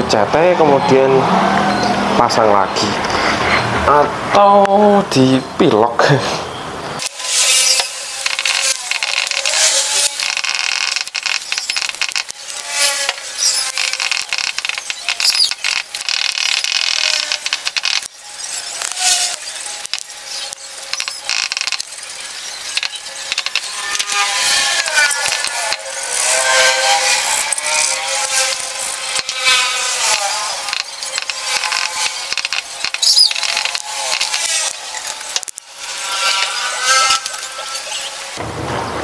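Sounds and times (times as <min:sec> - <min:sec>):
brief squeaks: 0:03.1 - 0:03.7, 0:13.4 - 0:13.7.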